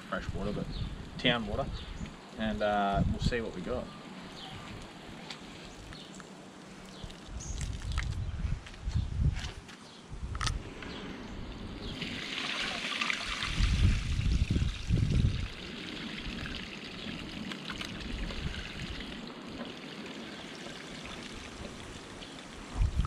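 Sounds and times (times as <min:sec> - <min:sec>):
water pouring onto ground: 0:06.7 - 0:08.2, 0:11.8 - 0:23.0
dull low rumbles: 0:13.6 - 0:15.6.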